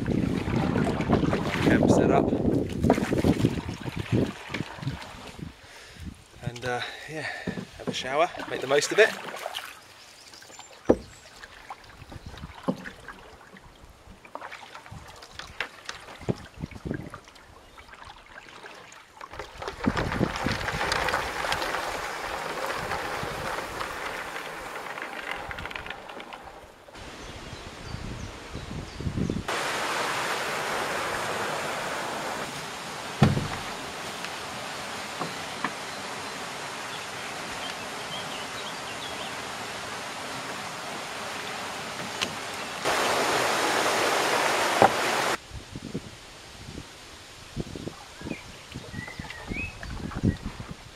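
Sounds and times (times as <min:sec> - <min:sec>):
reeds scraping along canoe hull: 0:06.4 - 0:13.7, 0:17.8 - 0:27.0, 0:30.1 - 0:36.2
river water rushing through weir: 0:29.5 - 0:45.4.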